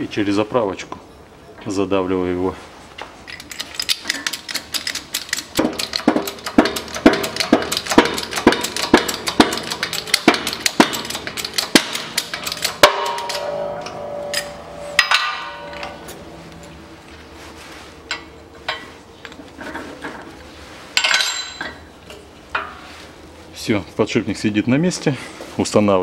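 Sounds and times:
metallic clicks and cracks: 0:03.2 - 0:16.8
ringing metallic tone: 0:08.5 - 0:19.0.

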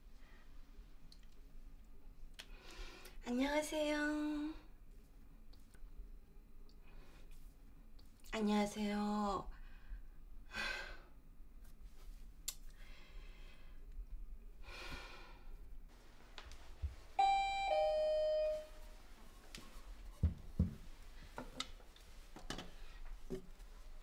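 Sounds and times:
two-note doorbell chime: 0:17.2 - 0:18.9.

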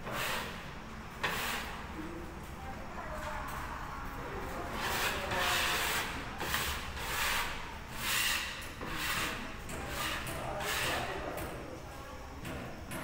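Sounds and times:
hand tool scraping ceiling board: 0:00.0 - 0:01.8, 0:04.7 - 0:11.5.

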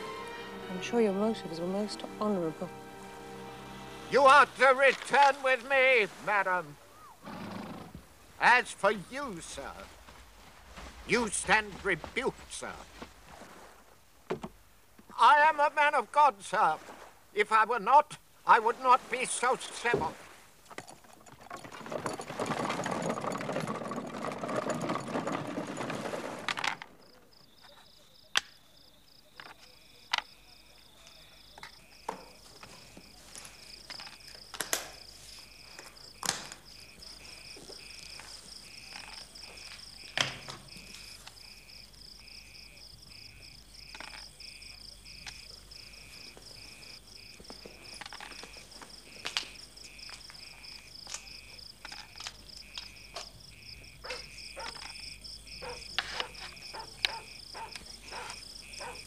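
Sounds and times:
crickets chirping: 0:00.0 - 0:59.0
horse-drawn carriage rattling: 0:20.6 - 0:27.0.

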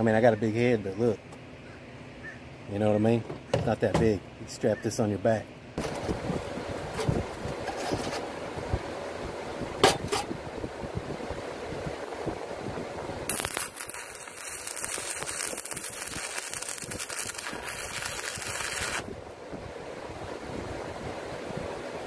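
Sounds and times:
welding arc crackling and hissing: 0:13.3 - 0:19.1.

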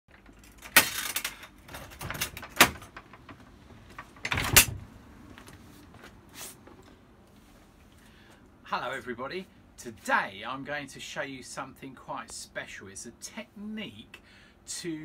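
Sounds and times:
door shutting: 0:01.7 - 0:03.4, 0:04.0 - 0:04.9.

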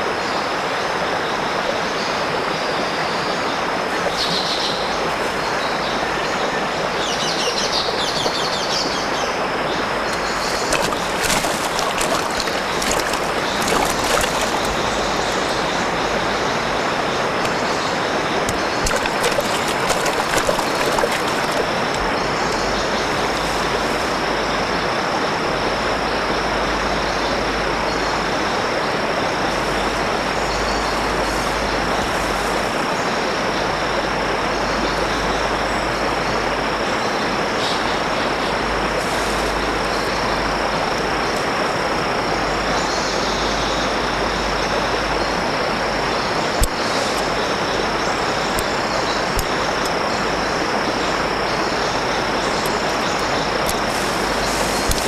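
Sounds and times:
stream rushing over rocks: 0:00.0 - 0:25.8, 0:44.0 - 0:55.0
splashes of wading: 0:03.8 - 0:24.4, 0:46.3 - 0:55.0.

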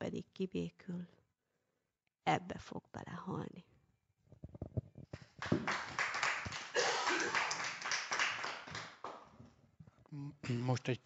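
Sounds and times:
people applauding: 0:05.2 - 0:09.3.

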